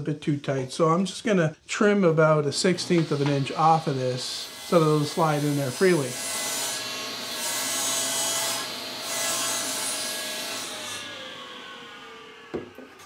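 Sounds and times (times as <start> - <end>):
table saw cutting wood: 2.6 - 13.0
saw winding down: 2.7 - 13.0.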